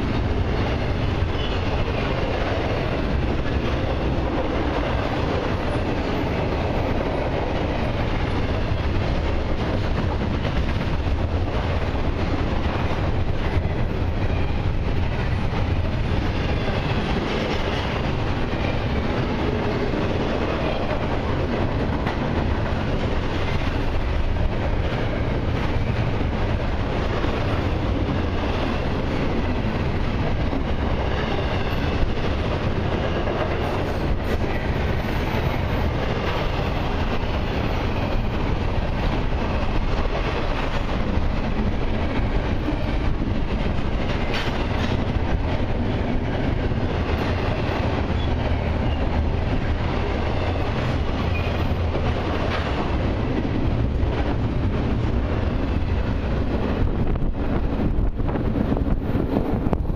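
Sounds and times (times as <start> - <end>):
clickety-clack of rail joints: 0.0 - 59.9
train wheels rumbling on rails: 0.0 - 59.9.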